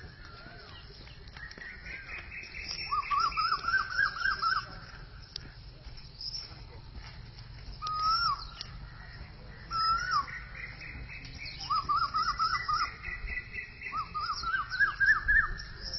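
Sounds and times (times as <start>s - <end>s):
bird-like whistled calls: 0.1s - 4.9s, 7.8s - 8.8s, 9.5s - 15.9s.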